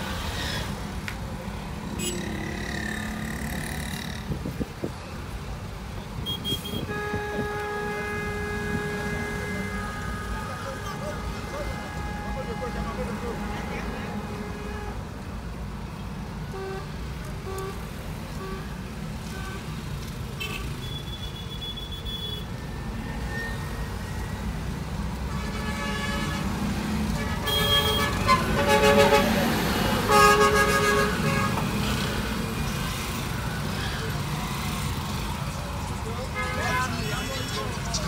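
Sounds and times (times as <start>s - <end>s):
engine and road rumble: 0.0s - 38.0s
vehicle horns honking: 6.2s - 15.1s, 16.5s - 22.5s, 25.3s - 26.5s, 27.1s - 32.2s, 36.2s - 38.0s.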